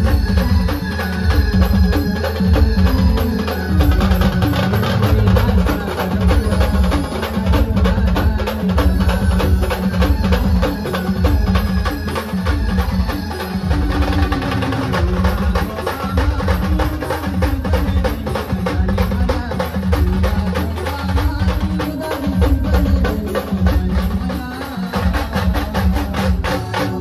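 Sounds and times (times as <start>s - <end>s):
heavy drumming with bass drum: 0.0s - 27.0s.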